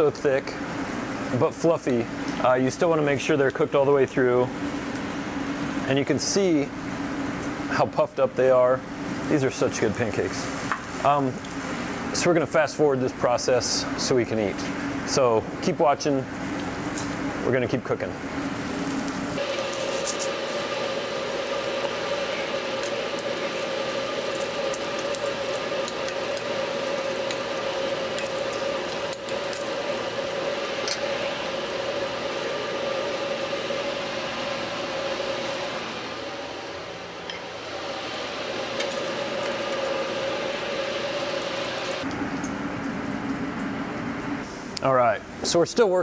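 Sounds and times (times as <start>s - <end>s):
ventilation hum: 0.0s - 46.0s
pancakes and bacon sizzling: 19.4s - 36.7s, 37.5s - 42.0s.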